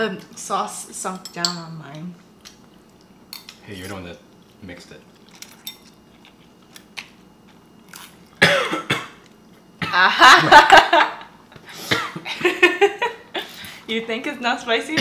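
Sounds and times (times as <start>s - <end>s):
person coughing: 8.4s - 9.2s, 11.8s - 12.3s.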